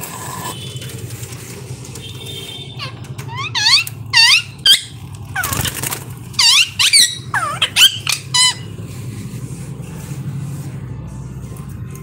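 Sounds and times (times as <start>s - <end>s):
parakeets screeching: 2.7s - 8.8s
wings fluttering: 5.0s - 6.4s.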